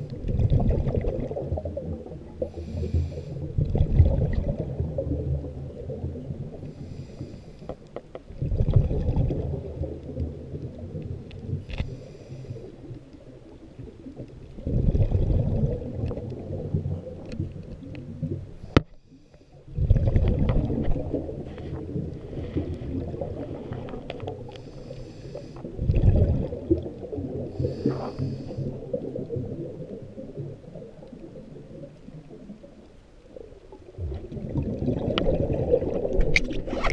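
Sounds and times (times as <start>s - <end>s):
underwater rumbling water surges: 0.0s - 7.6s, 8.3s - 18.8s, 19.6s - 36.9s
faint underwater hissing: 2.4s - 3.6s, 6.5s - 7.9s, 11.6s - 13.6s, 18.5s - 19.8s, 20.7s - 25.8s, 26.4s - 29.6s.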